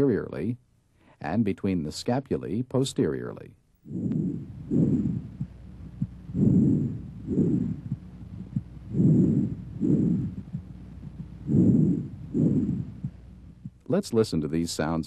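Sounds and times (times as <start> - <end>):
breath sounds through chest: 3.9 - 13.8.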